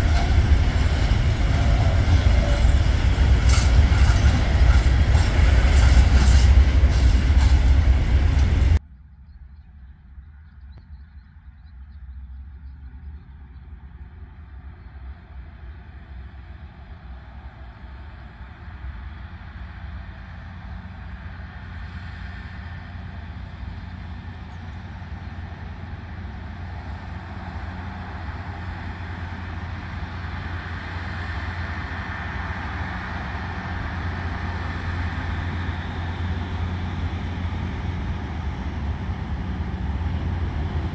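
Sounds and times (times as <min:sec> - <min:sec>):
locomotive engine hum: 0:00.0 - 0:08.8, 0:09.6 - 0:40.9
train wheels on rails: 0:00.0 - 0:08.8, 0:19.5 - 0:40.9.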